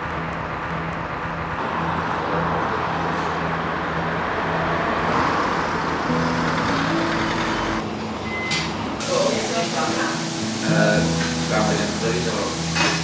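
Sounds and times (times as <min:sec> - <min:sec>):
road traffic rumble: 0:00.0 - 0:10.0
background music low notes: 0:05.8 - 0:12.8.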